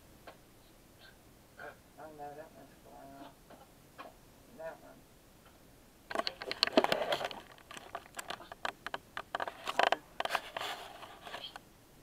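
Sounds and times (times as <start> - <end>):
camera handling clicks and scrapes: 6.1 - 11.6.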